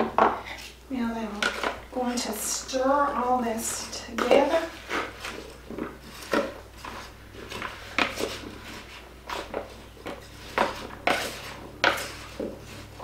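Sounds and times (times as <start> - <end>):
spoon scraping plastic bowl: 3.7 - 13.0.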